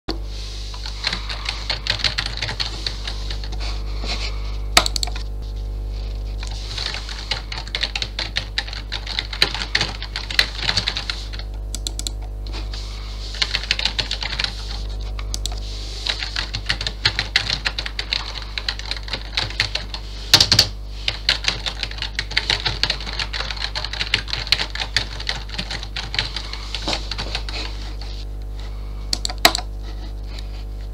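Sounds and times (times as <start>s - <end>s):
steady low hum: 0.1s - 30.9s
fast keyboard typing: 0.8s - 3.6s, 4.8s - 5.3s, 6.4s - 12.4s, 13.3s - 28.0s, 29.1s - 29.7s.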